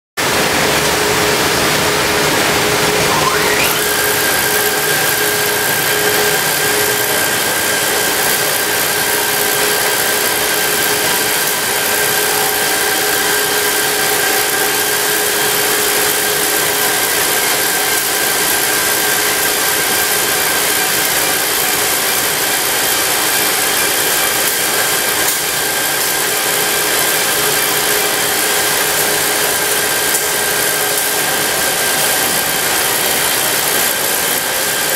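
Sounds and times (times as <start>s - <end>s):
machine whine rising in pitch: 2.6s - 4.6s.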